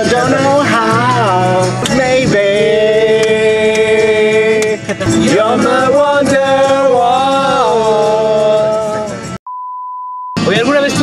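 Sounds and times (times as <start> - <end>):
man singing with instruments: 0.0 - 9.4
high-pitched beep tone: 9.5 - 10.5.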